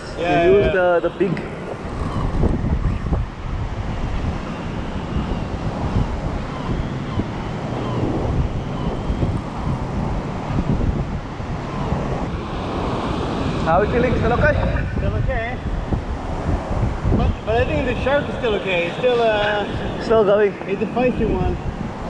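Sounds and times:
wind buffeting microphone: 0:00.0 - 0:22.0
sea waves: 0:03.3 - 0:14.7.

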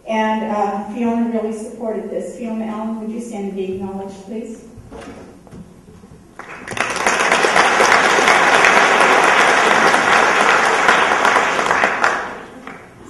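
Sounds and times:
audience applause: 0:06.4 - 0:13.0.

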